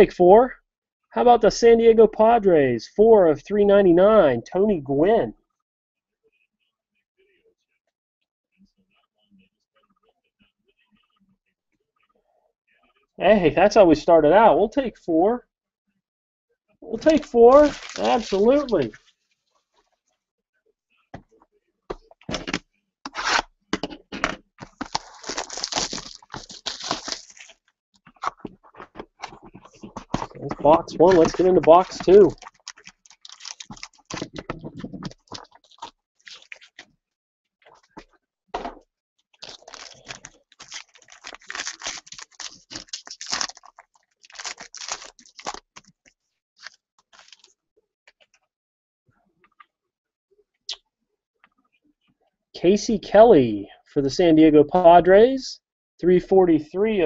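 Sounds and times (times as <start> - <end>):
plastic wrap ripping: 17.0 - 19.1, 24.6 - 27.6, 30.2 - 36.8, 39.4 - 46.0, 46.6 - 47.5
plastic crinkling: 17.0 - 20.0, 24.6 - 36.9, 39.4 - 47.5.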